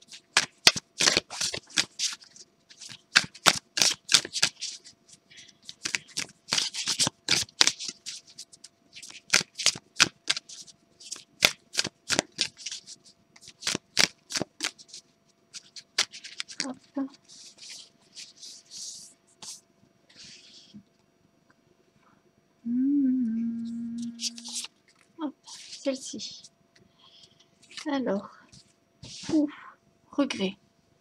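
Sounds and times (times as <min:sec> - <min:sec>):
cards being shuffled: 0:00.1 - 0:04.9, 0:05.7 - 0:19.6, 0:24.2 - 0:24.8, 0:27.6 - 0:28.0.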